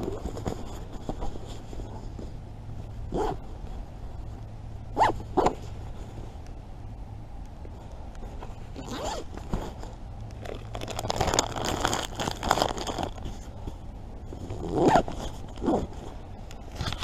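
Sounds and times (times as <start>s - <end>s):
zip rasping: 3.1s - 3.4s, 8.7s - 9.9s
jacket fabric rustling: 8.2s - 10.0s
plastic packet crinkling: 10.3s - 13.4s.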